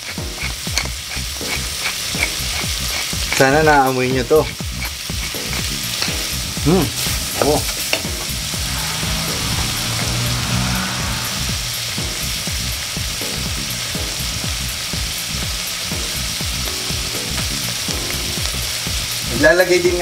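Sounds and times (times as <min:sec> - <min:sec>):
vegetables sizzling in a pot: 0:00.0 - 0:20.0.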